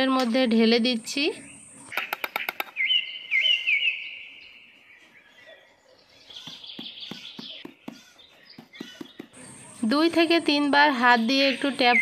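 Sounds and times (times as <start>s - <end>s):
bird chirping: 0.0s - 12.0s.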